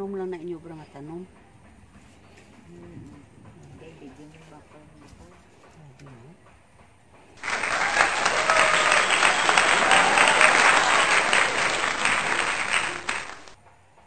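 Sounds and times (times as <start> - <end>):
dense even clapping: 7.4 - 13.6.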